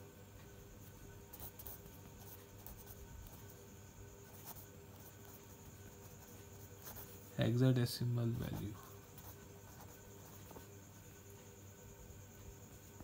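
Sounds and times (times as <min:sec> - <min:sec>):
marker pen scratching on paper: 0:00.9 - 0:03.6, 0:04.2 - 0:07.4, 0:08.4 - 0:11.0.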